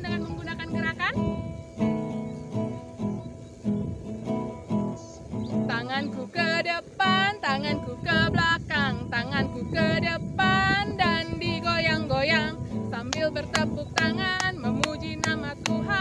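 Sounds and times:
woman singing: 0.0 - 1.2, 5.5 - 16.0
acoustic guitar: 0.0 - 16.0
hand claps: 13.0 - 15.9.

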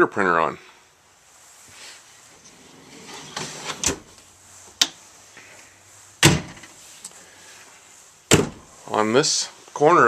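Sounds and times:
cabinet shelf sliding with scraping rumble: 2.3 - 4.2
cabinet door shutting: 3.0 - 4.1, 6.2 - 6.7, 8.3 - 8.6.

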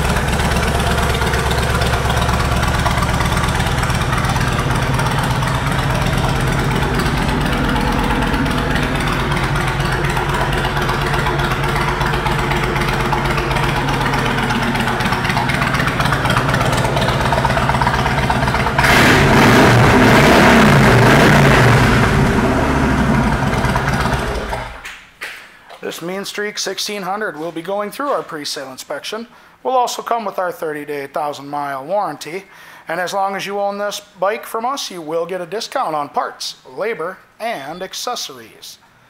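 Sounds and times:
motorcycle engine idling and revving: 0.0 - 24.8.

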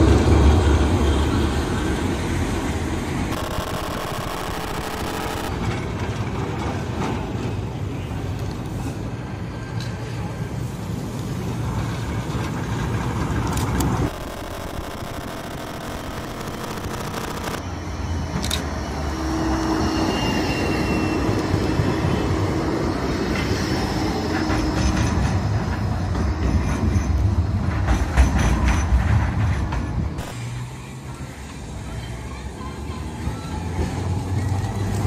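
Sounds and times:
tram wheels rumbling on rails: 0.0 - 3.3, 5.5 - 14.1, 17.6 - 35.0
electric motor hum: 14.1 - 17.6
high wheel squeal: 19.7 - 21.7.

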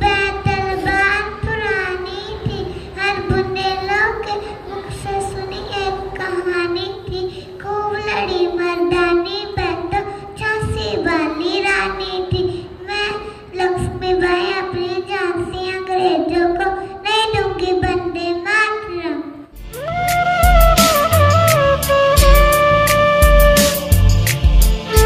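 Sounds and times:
girl singing into microphone: 0.0 - 19.3.

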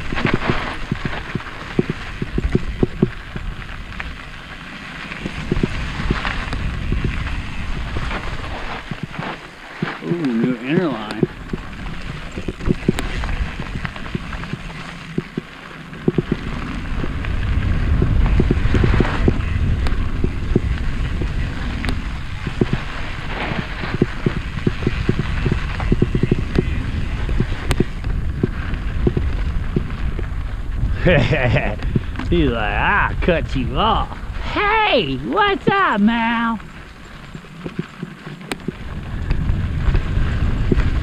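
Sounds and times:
tyre noise on dirt: 0.0 - 41.0
wind buffeting microphone: 0.0 - 41.0
bike rattling clicks and knocks: 10.7 - 30.3.

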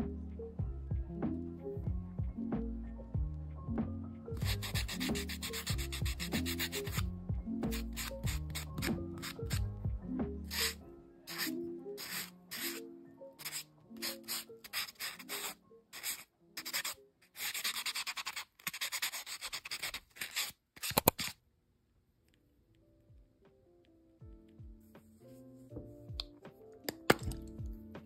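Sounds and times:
soft lofi music: 0.0 - 19.8, 22.2 - 28.0
nail buffer scratching fingernails: 4.4 - 7.0, 7.6 - 9.6, 10.5 - 12.8, 13.4 - 21.4.

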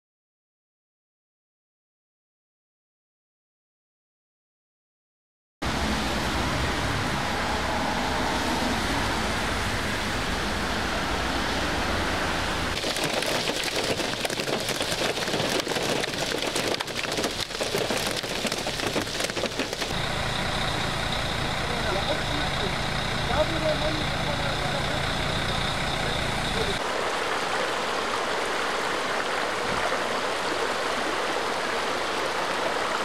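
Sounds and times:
heavy rain on a car: 12.7 - 20.1.

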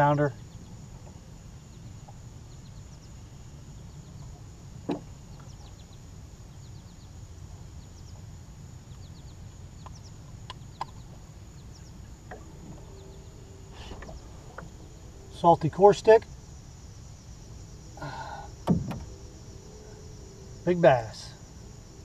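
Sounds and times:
steady low rumble: 0.0 - 22.0
bird chirps: 8.9 - 21.6
sharp knock: 18.6 - 19.0.

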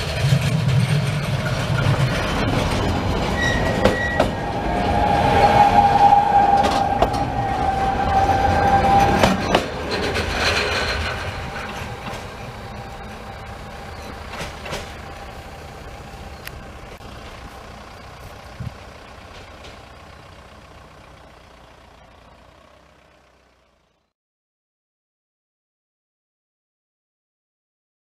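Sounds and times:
train wheel clacks: 0.0 - 5.1, 6.0 - 17.4, 18.4 - 20.1
electric train running on track: 0.0 - 24.1.

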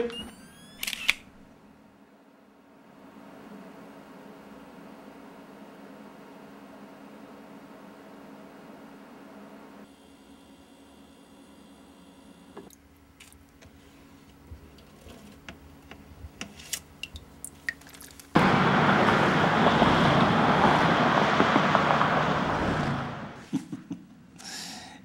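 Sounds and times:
vehicle road noise passing: 18.4 - 23.4.

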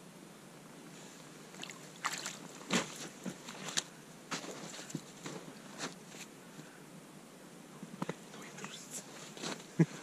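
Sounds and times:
water splashing: 1.5 - 3.9
crunching in snow: 2.7 - 6.3.

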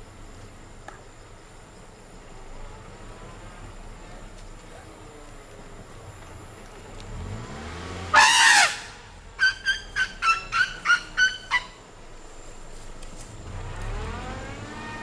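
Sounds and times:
elephant trumpeting: 8.1 - 11.8
high-pitched honks: 8.1 - 11.8.

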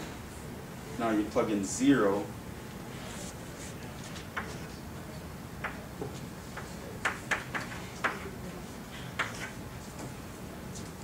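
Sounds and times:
chalk tapping on blackboard: 5.6 - 8.3, 9.2 - 9.6.

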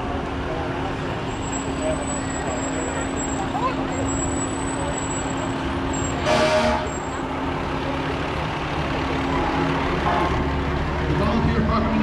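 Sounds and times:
fire engine driving past: 0.0 - 12.0
fire engine horn blast: 6.1 - 7.1, 9.4 - 10.5.

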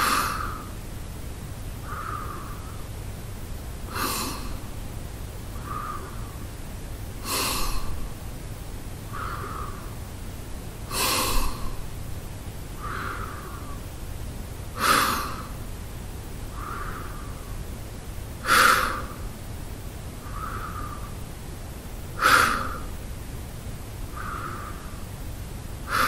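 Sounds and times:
man breathing through mouth: 5.5 - 6.4, 9.1 - 10.0, 16.5 - 17.6, 20.2 - 21.2.

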